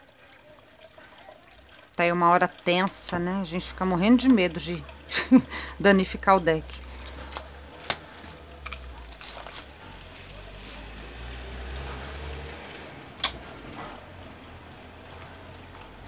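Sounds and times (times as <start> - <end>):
cellophane crinkling: 5.1 - 11.5.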